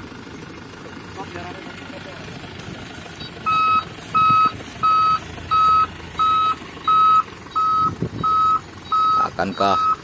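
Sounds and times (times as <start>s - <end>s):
truck engines running: 0.0s - 10.0s
reversing alarm beeping: 3.2s - 10.0s.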